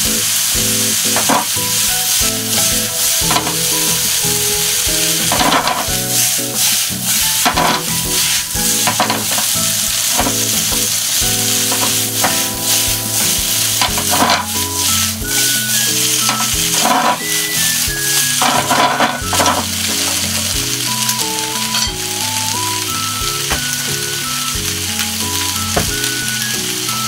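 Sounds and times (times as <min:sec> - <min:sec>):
food sizzling in a frying pan: 0:00.0 - 0:27.0
soft background music: 0:00.0 - 0:27.0
stirring strokes in a pan: 0:00.0 - 0:27.0.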